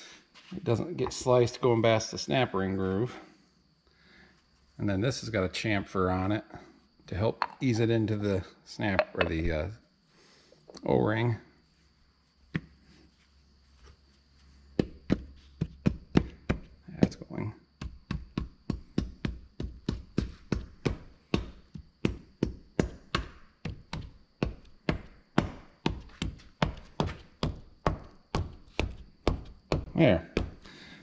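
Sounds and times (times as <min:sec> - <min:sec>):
sharp taps on metal cap: 0:07.4 - 0:07.6, 0:09.0 - 0:09.4.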